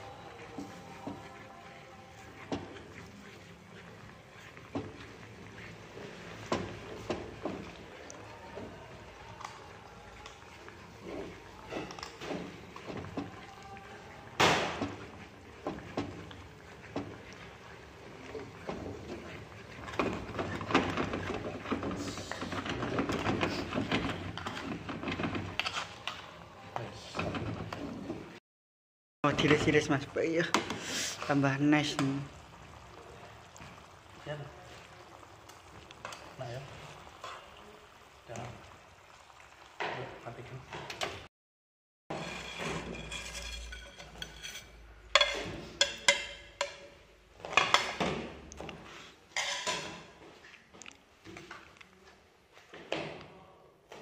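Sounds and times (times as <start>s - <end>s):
noodles sliding across plate: 0.0s - 26.4s
broth boiling in a pan: 0.0s - 28.4s, 29.2s - 41.3s, 42.1s - 53.2s
metal tongs and plates clinking: 42.4s - 46.9s.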